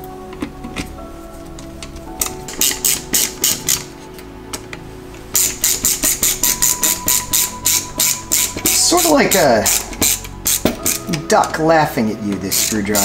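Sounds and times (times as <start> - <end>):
ratcheting screwdriver clicking: 2.2 - 3.9, 5.4 - 11.1, 12.5 - 13.0.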